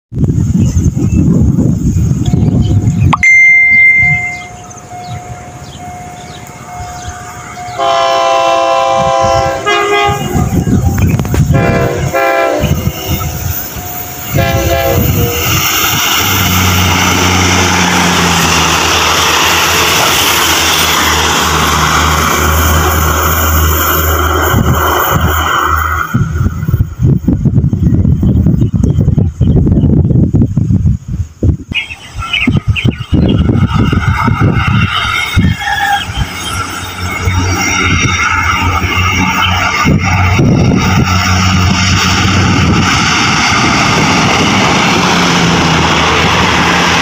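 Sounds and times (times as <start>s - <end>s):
train engine hum and wheel noise: 0.1s - 47.0s
wind rumble on microphone: 0.1s - 47.0s
train horn blasts: 3.9s - 10.7s, 11.4s - 13.3s, 13.9s - 15.6s.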